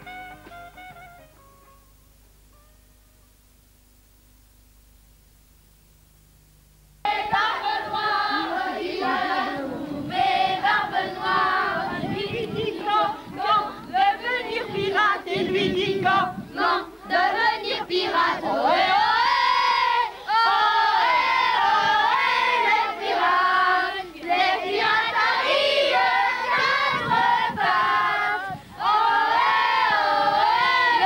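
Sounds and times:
children singing together: 7.1 - 31.0.

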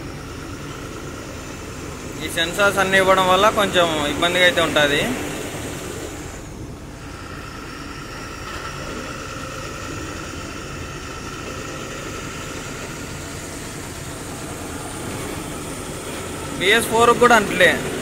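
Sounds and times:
faint steady whine: 0.0 - 18.0
road noise: 0.0 - 18.0
truck diesel engine running: 0.0 - 18.0.

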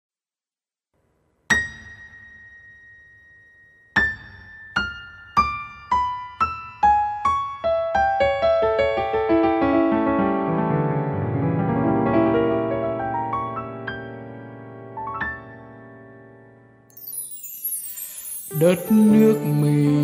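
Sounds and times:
keyboard instrument notes: 16.9 - 20.0.

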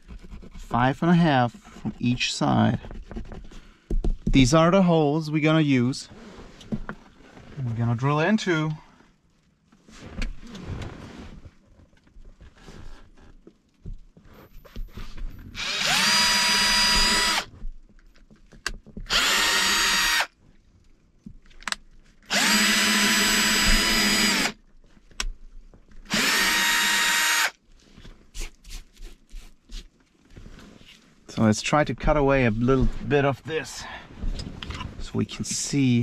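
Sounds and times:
cordless drill whining: 15.6 - 17.5, 19.1 - 20.3, 22.3 - 24.6, 26.1 - 27.6.

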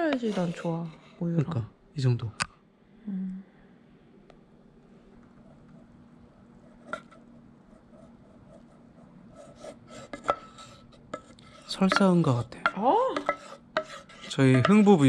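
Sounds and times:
spoon scraping a steel pitcher: 9.5 - 12.2, 13.2 - 15.0
spoon tapping: 11.2 - 13.9.

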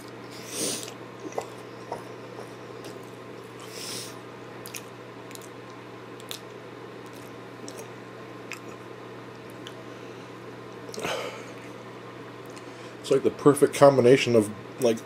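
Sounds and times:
steady low hum: 0.0 - 15.0
close-up chewing: 0.7 - 3.8, 4.6 - 9.8
wet mouth clicks and smacks: 4.6 - 7.9, 8.5 - 9.8
breath: 12.6 - 13.0.

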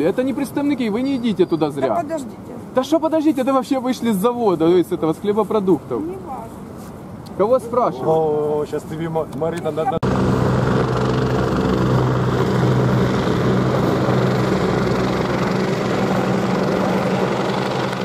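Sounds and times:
helicopter flying low: 9.6 - 18.0.

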